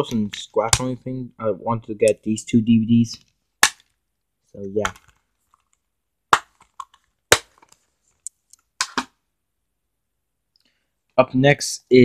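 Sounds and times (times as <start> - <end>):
plastic cases clicking and knocking: 4.8 - 5.8, 6.4 - 7.9.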